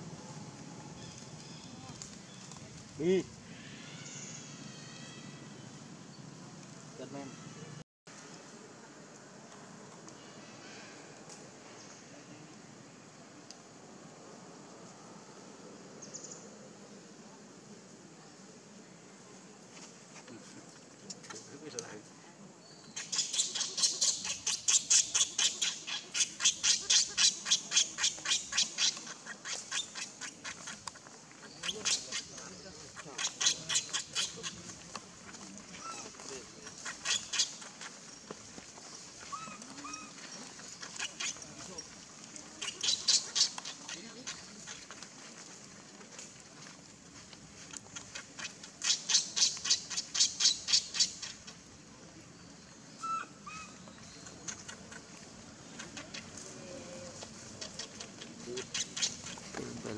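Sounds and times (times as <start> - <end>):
baby monkey squeaking: 22.9 - 30.8, 36.8 - 37.7, 40.8 - 41.4, 42.6 - 44.0, 58.6 - 59.4.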